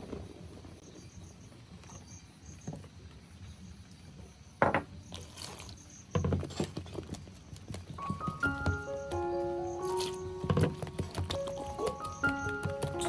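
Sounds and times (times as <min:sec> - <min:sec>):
faint insect chirps: 0:00.7 - 0:06.6, 0:07.2 - 0:10.6.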